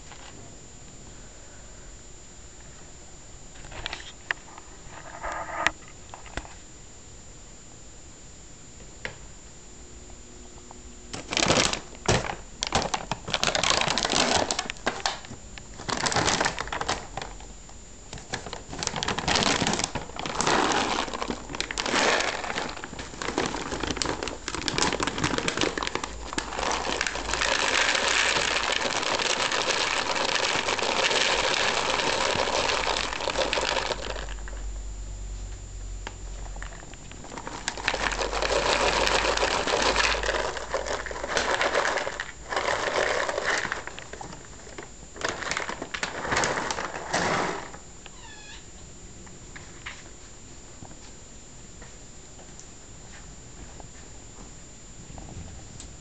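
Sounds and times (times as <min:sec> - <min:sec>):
rustling and crinkling: 0:03.5 - 0:06.7, 0:11.2 - 0:17.5, 0:18.1 - 0:34.7, 0:36.2 - 0:48.3.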